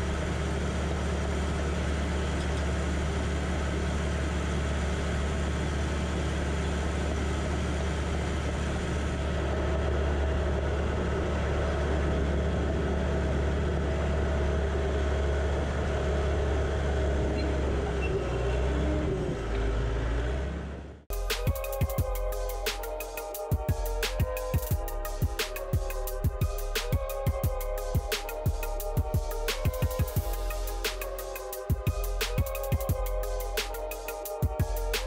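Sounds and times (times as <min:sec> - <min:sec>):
diesel engine running: 0:00.0 - 0:35.0.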